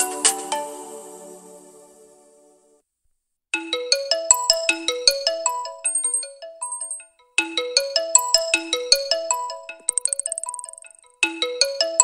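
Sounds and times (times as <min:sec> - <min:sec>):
phone ringtone melody: 0:03.6 - 0:12.0.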